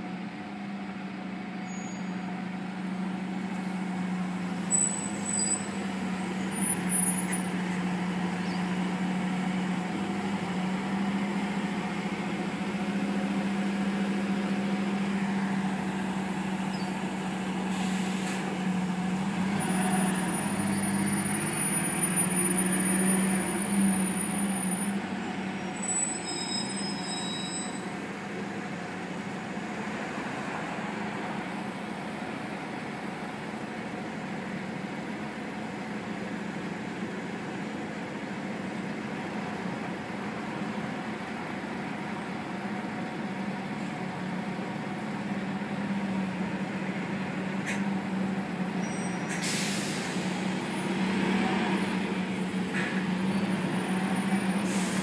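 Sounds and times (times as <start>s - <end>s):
bus engine droning: 0.0s - 55.0s
air-brake hiss: 17.6s - 18.4s, 49.2s - 50.5s, 54.6s - 55.0s.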